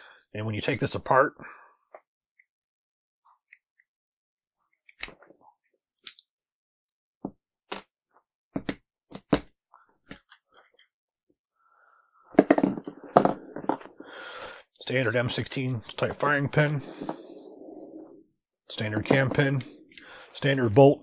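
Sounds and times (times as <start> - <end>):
metal clicks of rifle bolt parts: 4.8 - 5.2, 6.0 - 6.3.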